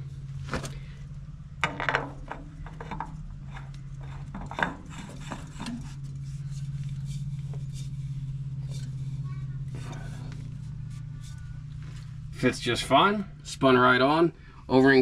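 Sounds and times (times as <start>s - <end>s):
steady low hum: 0.0s - 15.0s
rubs and scrapes against metal: 2.0s - 12.8s.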